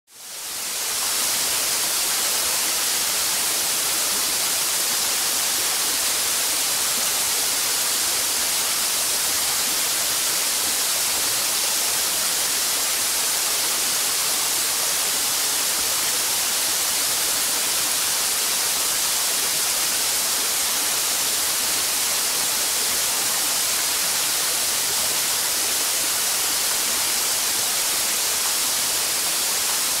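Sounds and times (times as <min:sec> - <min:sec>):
waterfall rushing: 0:00.3 - 0:30.0.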